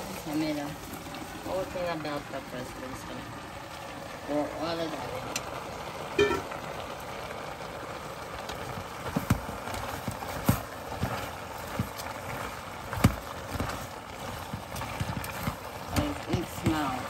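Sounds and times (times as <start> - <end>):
vegetables sizzling: 0.0 - 17.0.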